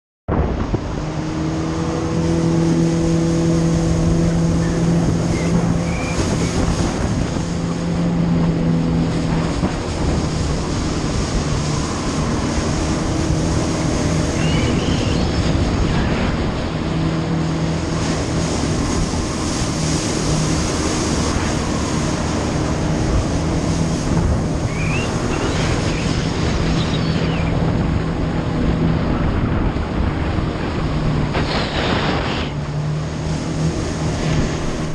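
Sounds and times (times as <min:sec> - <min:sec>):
jet ski engine running: 0:00.3 - 0:34.9
wind on microphone: 0:00.3 - 0:34.9
water spray rushing: 0:17.5 - 0:27.6, 0:31.0 - 0:34.9.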